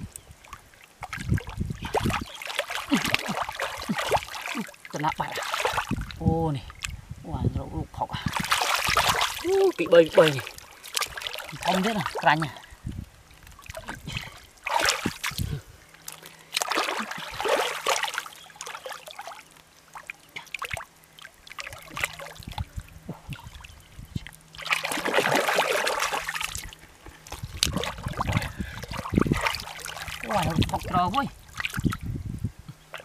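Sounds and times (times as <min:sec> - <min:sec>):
hands splashing in muddy water: 0:01.0 - 0:06.2, 0:08.3 - 0:12.5, 0:13.6 - 0:20.9, 0:24.6 - 0:32.1.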